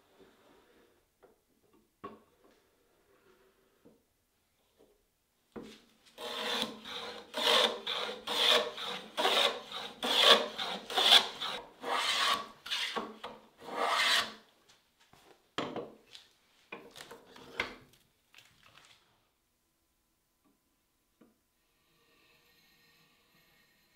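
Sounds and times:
hand plane shaving wood: 6.2s - 14.4s.

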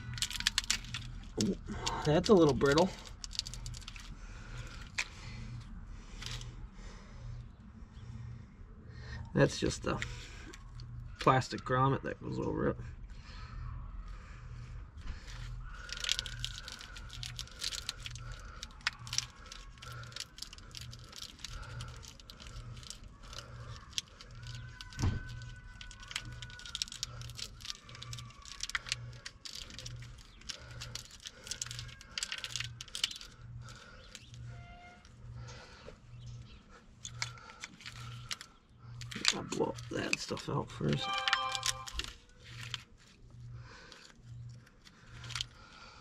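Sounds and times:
plastic connectors clicking: 0.0s - 5.1s, 15.7s - 34.5s, 37.0s - 40.2s.

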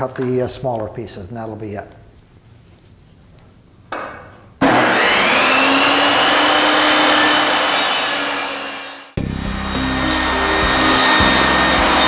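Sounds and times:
table saw motor whine: 4.6s - 12.0s.

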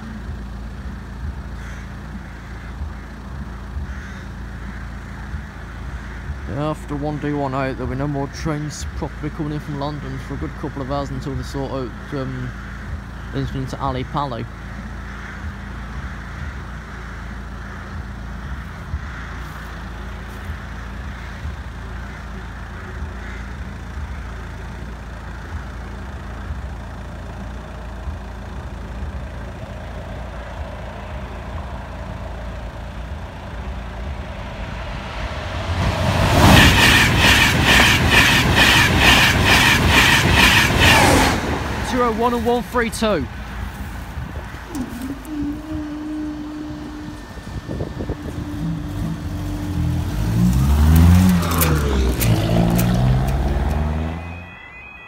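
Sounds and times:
train wheels clattering: 35.7s - 42.6s.

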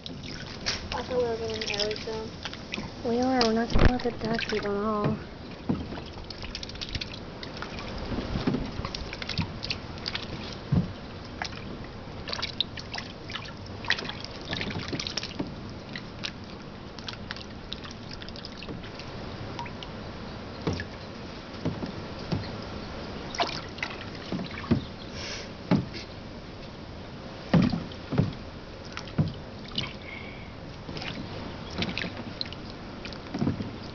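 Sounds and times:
duck splashing in water: 0.0s - 11.6s, 12.2s - 20.0s, 21.7s - 25.0s, 30.9s - 33.9s.

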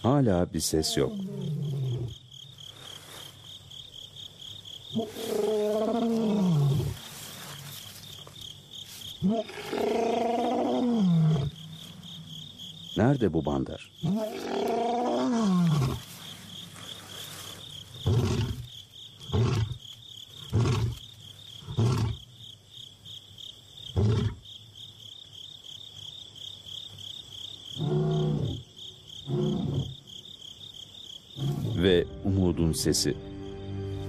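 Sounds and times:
insect trill: 0.0s - 34.0s
lion grunting roars: 0.8s - 2.2s, 4.9s - 7.1s, 9.2s - 12.4s, 14.0s - 16.1s, 18.0s - 19.8s, 23.9s - 24.4s, 27.8s - 28.6s, 29.2s - 30.0s, 31.4s - 32.0s
lion roaring: 0.8s - 2.2s, 4.9s - 7.0s, 9.2s - 12.4s, 14.0s - 16.1s, 18.0s - 19.8s, 27.8s - 28.6s, 29.3s - 30.0s, 31.4s - 32.0s.

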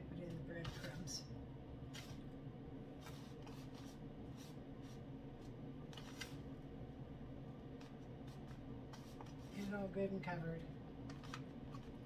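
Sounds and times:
air fryer humming: 0.0s - 12.0s.

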